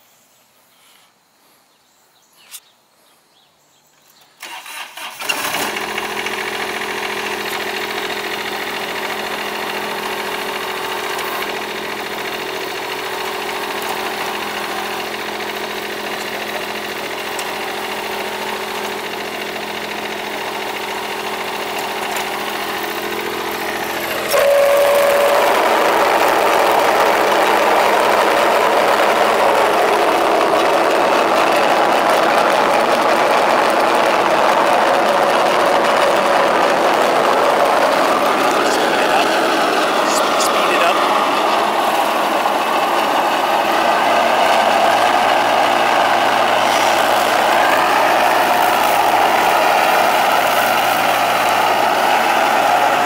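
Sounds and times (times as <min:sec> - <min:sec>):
diesel mower engine starting and idling: 0:04.4 - 0:53.0.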